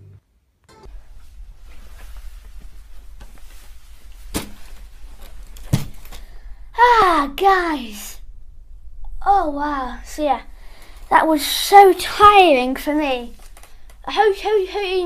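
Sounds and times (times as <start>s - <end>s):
low steady hum: 0.0s - 15.0s
rustling: 0.9s - 6.7s, 10.4s - 14.0s.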